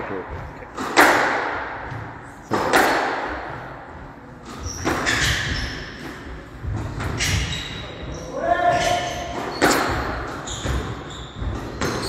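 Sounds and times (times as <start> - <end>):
squash ball hitting rackets and walls: 0.7 - 12.0
shoe squeaks on wooden floor: 4.4 - 6.4, 7.0 - 12.0.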